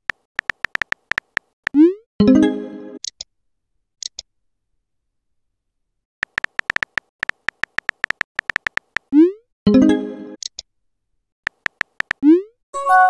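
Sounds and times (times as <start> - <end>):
keyboard typing clicks: 0.0 - 1.8, 6.2 - 9.1, 11.5 - 12.4
message received chime: 12.8 - 13.0.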